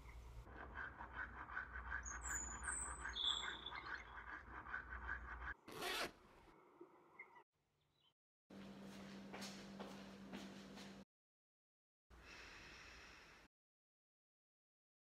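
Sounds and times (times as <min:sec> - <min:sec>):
zipper zip: 0:05.7 - 0:06.2.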